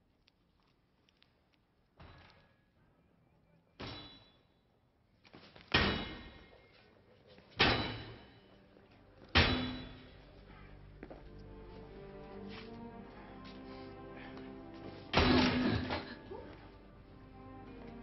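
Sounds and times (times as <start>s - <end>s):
sledgehammer clanging on metal sign: 7.6s - 8.4s, 9.4s - 10.1s.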